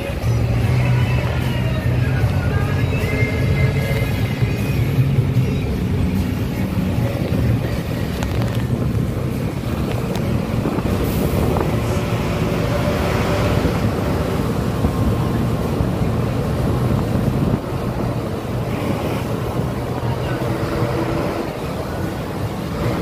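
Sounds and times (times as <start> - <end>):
bus engine hum: 0.0 - 23.0
road and tyre noise: 0.0 - 23.0
wind buffeting microphone: 6.9 - 23.0.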